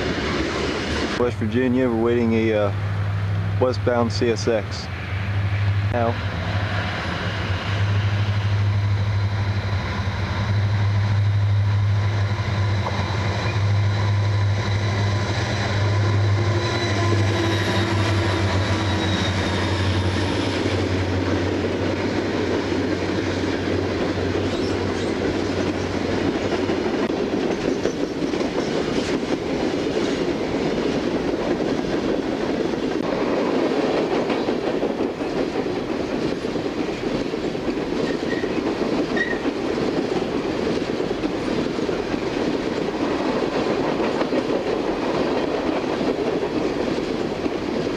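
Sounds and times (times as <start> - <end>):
diesel locomotive drone: 0.0 - 47.9
freight cars rumbling on rails: 0.0 - 47.9.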